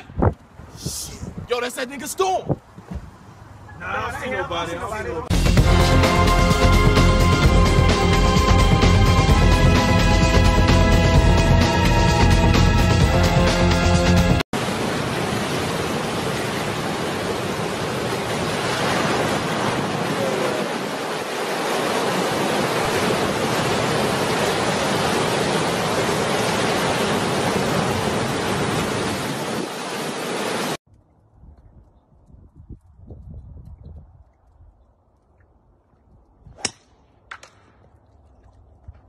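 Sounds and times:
wind: 0:00.0 - 0:05.3, 0:14.5 - 0:39.0
heavy ocean surf: 0:14.6 - 0:30.8.

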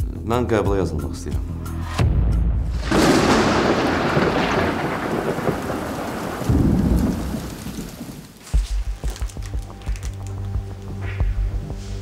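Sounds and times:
thunder cracking and rumbling: 0:02.7 - 0:08.4
rain: 0:02.8 - 0:10.9.

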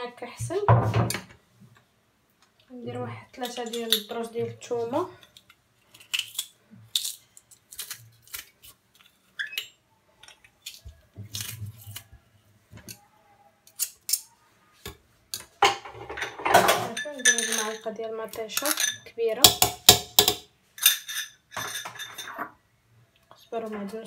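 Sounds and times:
metal tapping a pot: 0:18.7 - 0:20.5.

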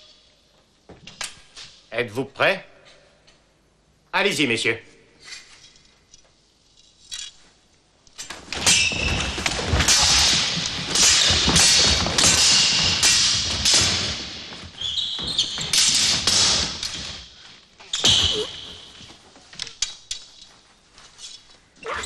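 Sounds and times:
sabres clashing: 0:08.2 - 0:20.3
feet stamping on wooden floor: 0:08.8 - 0:17.2.

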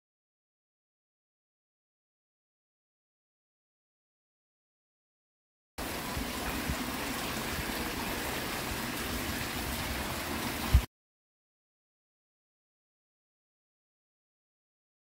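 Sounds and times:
fountain water splashing into pool: 0:05.8 - 0:10.9.

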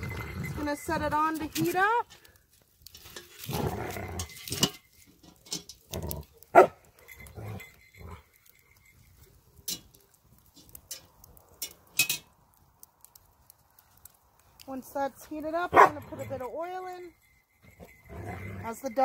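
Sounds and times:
dogs fighting and barking: 0:03.4 - 0:04.8, 0:05.6 - 0:08.7, 0:15.7 - 0:16.4, 0:17.6 - 0:18.7.

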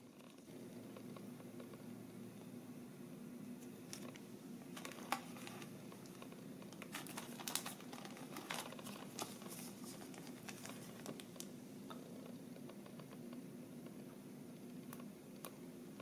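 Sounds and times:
low steady hum: 0:00.0 - 0:16.0
plastic sleeve crinkling: 0:03.9 - 0:11.5.

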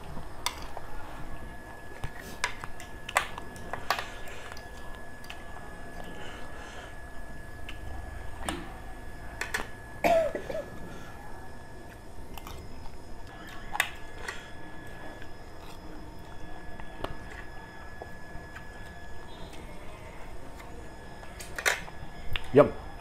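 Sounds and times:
faint steady high tone: 0:03.6 - 0:23.0
person coughing: 0:10.0 - 0:10.8.

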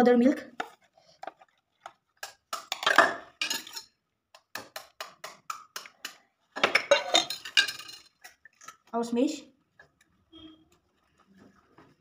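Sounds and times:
kitchen utensils tapping and clinking: 0:01.8 - 0:08.9.

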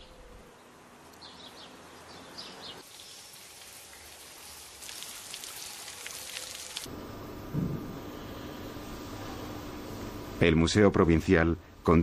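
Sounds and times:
steady hiss: 0:02.8 - 0:12.0.

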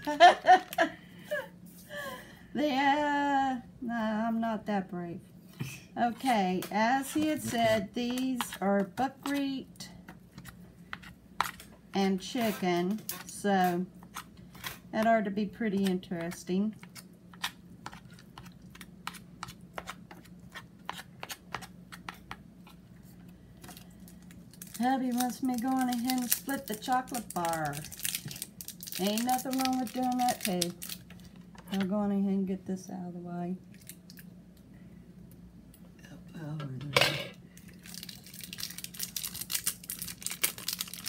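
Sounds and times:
low steady hum: 0:00.0 - 0:41.0
items and packaging clicking: 0:23.7 - 0:31.8, 0:37.8 - 0:41.0
wrapper crinkling: 0:24.1 - 0:31.4, 0:37.8 - 0:41.0.

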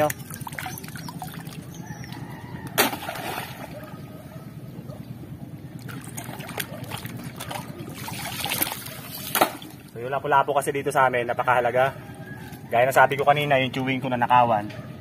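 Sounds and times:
water sloshing: 0:00.0 - 0:10.0
water splash: 0:02.8 - 0:03.9, 0:05.9 - 0:09.9.

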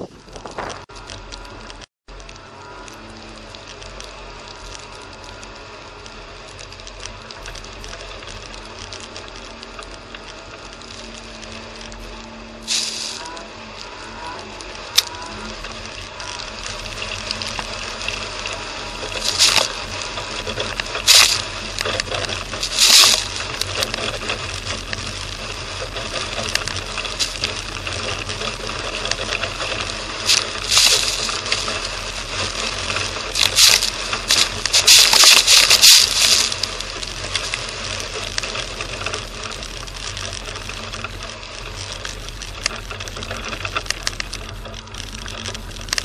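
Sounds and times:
car engine drone: 0:00.0 - 0:46.0
sharp hissing bursts: 0:12.6 - 0:13.2, 0:22.6 - 0:23.3, 0:33.4 - 0:36.7
fast mechanical rattle: 0:14.0 - 0:46.0.

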